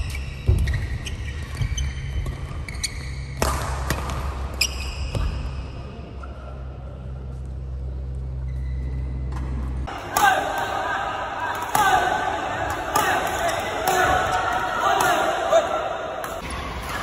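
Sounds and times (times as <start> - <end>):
shoes squeaking on court: 0.0 - 3.4, 4.5 - 5.6, 8.3 - 9.8
racket striking shuttlecock: 3.4 - 4.4
steady low hum: 5.3 - 12.9.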